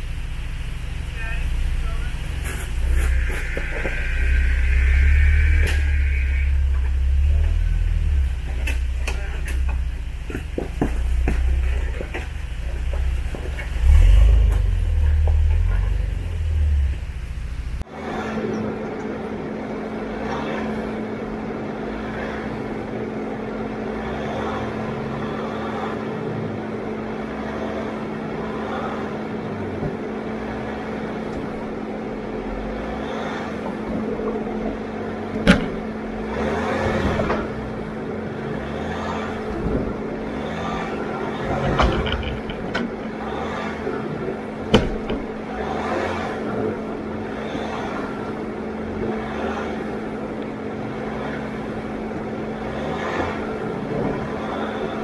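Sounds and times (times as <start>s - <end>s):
off-road vehicle engine running: 0.0s - 55.0s
sharp knocks and rattles: 6.6s - 16.2s, 39.3s - 45.9s.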